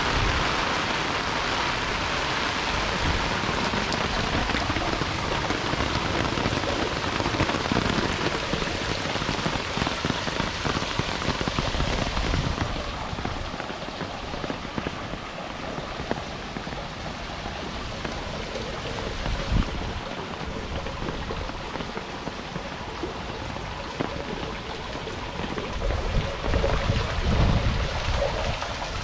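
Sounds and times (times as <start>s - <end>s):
heavy rain falling: 0.0s - 29.0s.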